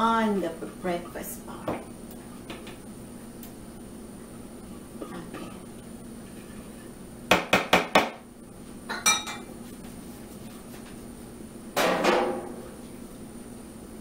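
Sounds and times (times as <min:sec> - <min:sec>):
kitchenware clatter: 0:08.9 - 0:09.5.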